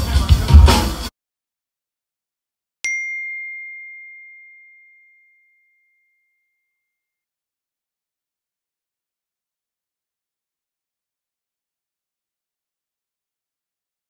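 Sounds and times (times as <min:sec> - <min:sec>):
bell-like ding: 0:02.8 - 0:07.2.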